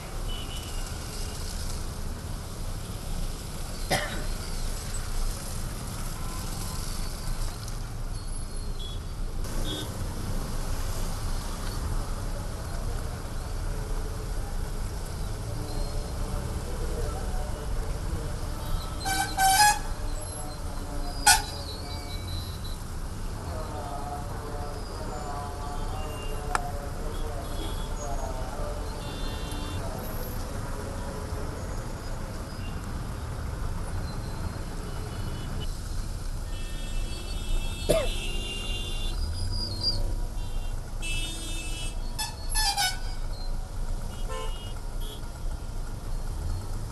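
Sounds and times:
low rumble of engines: 0:00.0 - 0:46.9
tyres hissing on wet road: 0:00.1 - 0:08.4, 0:09.5 - 0:33.1
car engines idling: 0:43.1 - 0:46.9.

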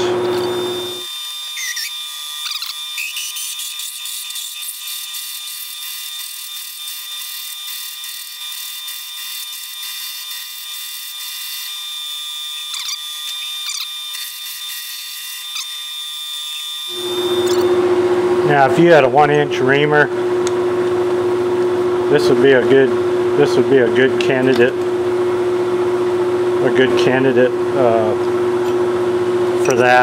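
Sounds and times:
drill whining into metal: 0:00.0 - 0:17.8
short squeaks: 0:12.7 - 0:14.3, 0:17.2 - 0:17.7.

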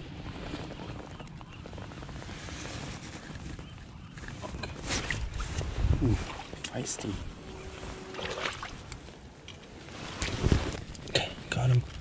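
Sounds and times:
wind buffeting microphone: 0:00.0 - 0:09.4
tidepool water splashing: 0:07.9 - 0:09.0.

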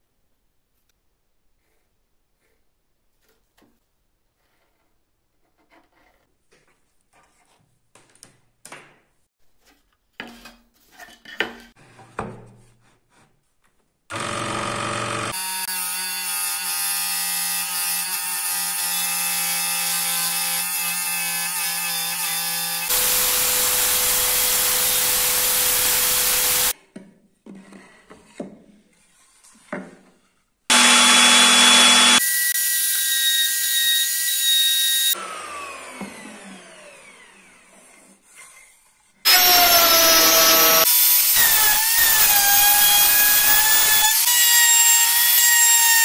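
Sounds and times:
hissing power saw cutting: 0:14.1 - 0:16.5, 0:21.9 - 0:26.8, 0:30.7 - 0:37.6, 0:39.3 - 0:46.0
electric scroll saw cutting: 0:14.1 - 0:26.8, 0:30.7 - 0:37.9, 0:39.3 - 0:46.0.

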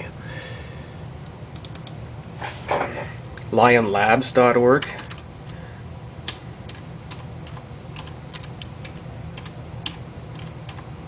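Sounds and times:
steady low hum: 0:00.0 - 0:11.0
computer keyboard typing: 0:04.9 - 0:05.2, 0:06.2 - 0:10.9.

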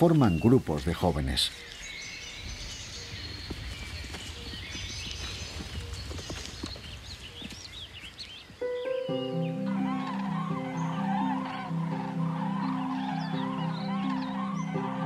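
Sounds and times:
small birds chirping: 0:00.0 - 0:15.0
hooves thudding on grass: 0:01.7 - 0:08.6.

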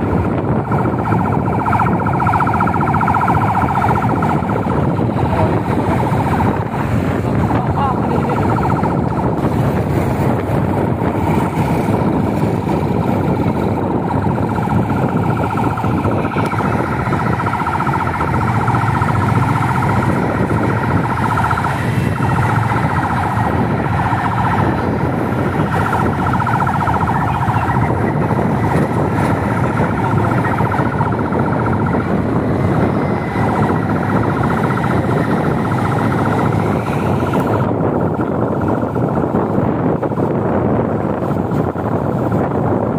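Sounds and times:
fast fluttering siren: 0:00.0 - 0:42.9
traffic noise: 0:00.0 - 0:42.9
wind noise: 0:00.0 - 0:42.9.

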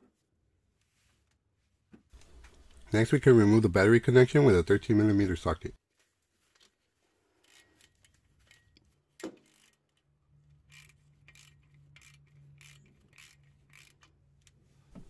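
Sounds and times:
hand ratchet clicking: 0:07.4 - 0:08.8, 0:09.4 - 0:14.6.

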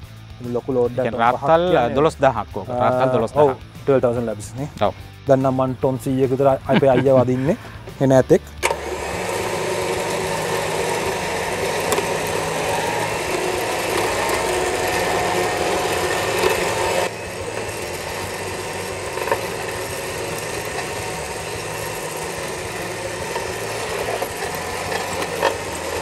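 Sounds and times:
electric winch motor running: 0:01.4 - 0:03.7, 0:08.5 - 0:26.0.

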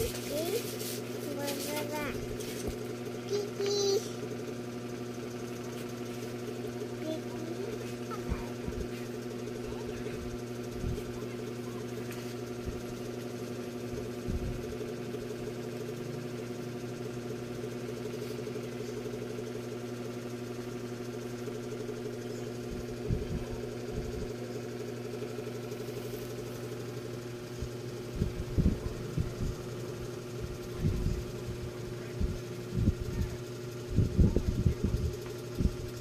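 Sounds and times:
steady machine hum: 0:00.0 - 0:36.0
soft low thumps: 0:14.2 - 0:14.7, 0:27.5 - 0:29.6, 0:32.2 - 0:33.3.

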